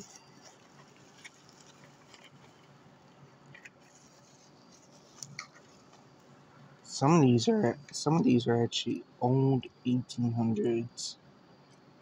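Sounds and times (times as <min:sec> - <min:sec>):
bubble wrap rustling and clicking: 0:00.0 - 0:06.1.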